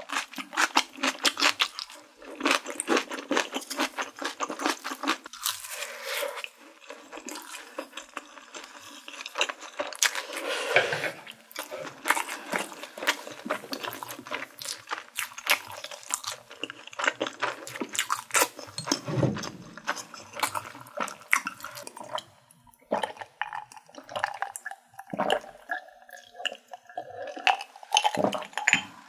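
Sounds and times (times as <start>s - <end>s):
wet mouth chewing sounds: 11.2s - 22.2s.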